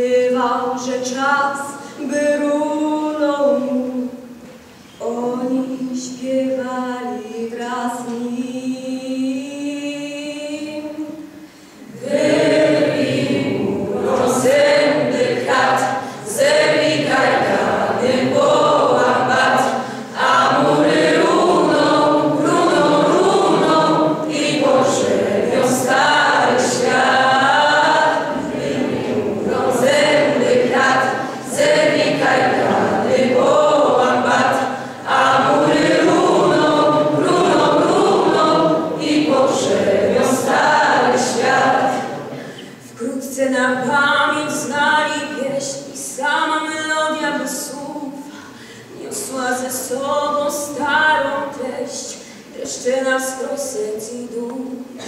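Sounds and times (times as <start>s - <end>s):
choir singing unaccompanied: 11.8s - 42.6s.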